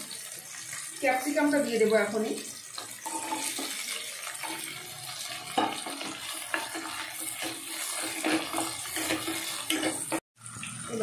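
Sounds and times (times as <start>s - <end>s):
vegetables sizzling in hot oil: 0.0s - 11.0s
spatula scraping pan: 2.7s - 10.2s.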